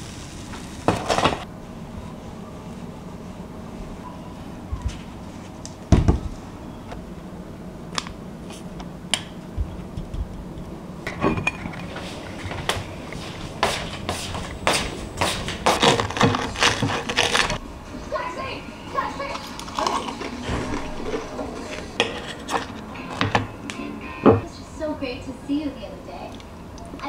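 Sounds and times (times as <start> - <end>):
dish clatter: 11.1 - 12.1
metal spoon scraping ceramic plate: 19.6 - 22.8.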